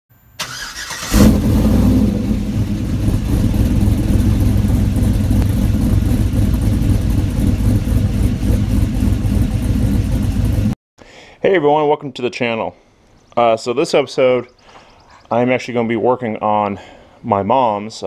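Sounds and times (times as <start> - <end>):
car engine starting and running: 0.4 - 10.8.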